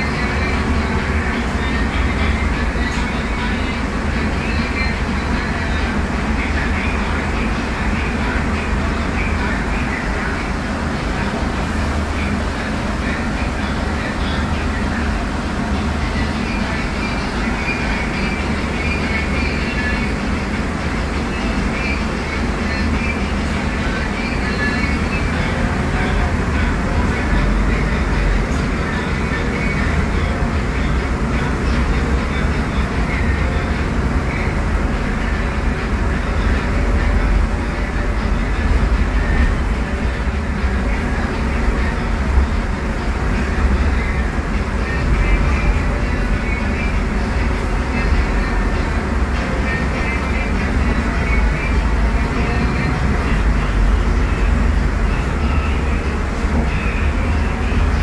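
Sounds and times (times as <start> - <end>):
bus diesel engine running: 0.0 - 58.0
road noise: 0.0 - 58.0.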